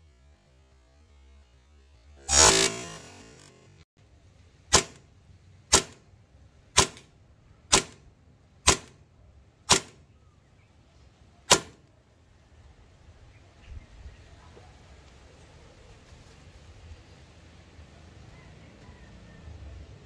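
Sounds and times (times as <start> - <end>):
airsoft pistol shots: 4.7 - 5.1, 5.7 - 6.1, 6.8 - 7.1, 7.7 - 8.0, 8.6 - 9.0, 9.7 - 10.0, 11.5 - 11.8.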